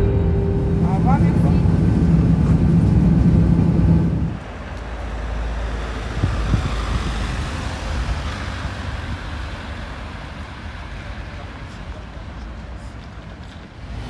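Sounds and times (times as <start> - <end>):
soft low thumps: 0.0 - 4.4
passing vehicles hissing: 0.0 - 14.0
road traffic rumble: 0.0 - 14.0.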